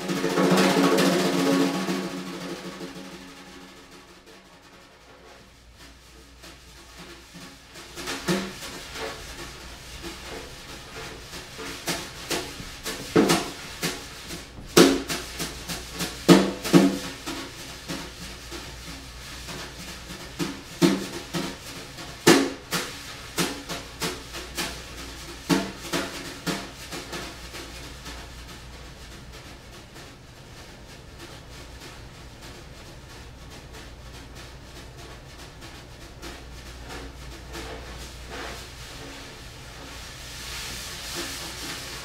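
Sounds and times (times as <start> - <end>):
drum hit with sticks: 0.0 - 30.1.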